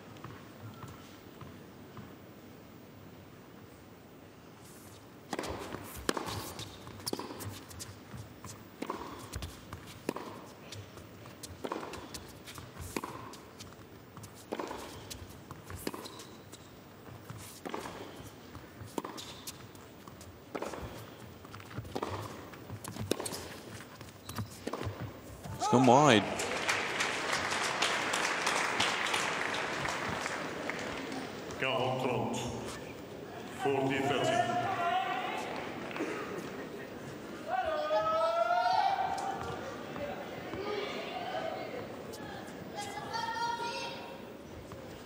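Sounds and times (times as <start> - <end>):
tennis racket hitting ball: 5.3 - 7.9, 8.8 - 13.8, 14.5 - 16.4, 17.4 - 25.6.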